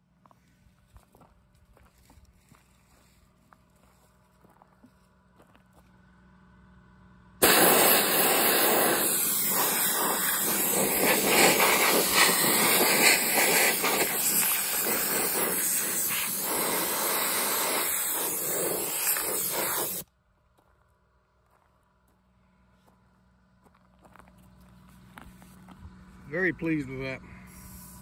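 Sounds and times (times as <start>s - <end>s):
blast gun hissing: 7.4s - 20.0s, 27.5s - 28.0s.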